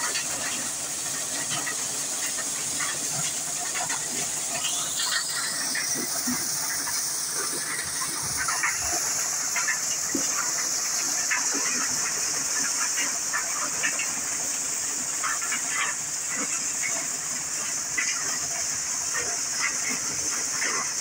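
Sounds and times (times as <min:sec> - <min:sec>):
maize thresher hissing: 0:00.7 - 0:16.5.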